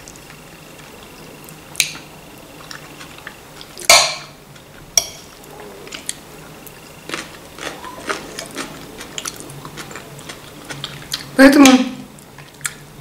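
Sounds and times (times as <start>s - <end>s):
chewing: 5.4s - 11.3s, 12.2s - 12.8s.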